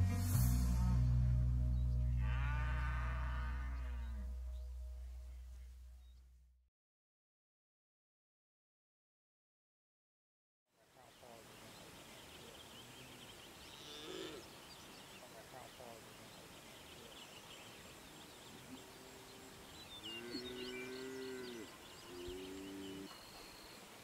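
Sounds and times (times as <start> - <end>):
bird chirps: 11.2 - 24.0
low drawn-out hooting calls: 18.4 - 23.8.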